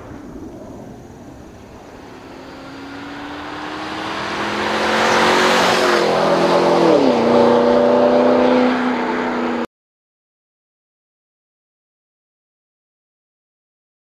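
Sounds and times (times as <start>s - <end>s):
car engine accelerating past: 0.3s - 9.7s.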